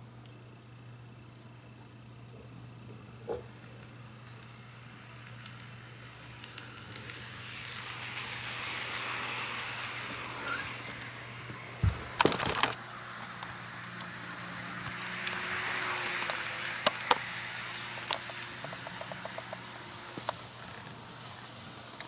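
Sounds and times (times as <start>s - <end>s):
faint motor hum: 0.0s - 22.0s
model train rolling hiss: 3.7s - 22.0s
wheels clicking over rail joints: 5.2s - 22.0s.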